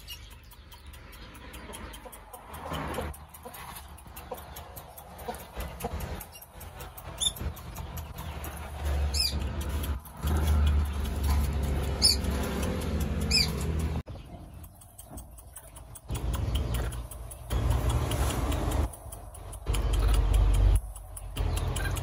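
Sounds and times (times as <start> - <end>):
high-pitched animal squeaks: 13.3 - 13.7.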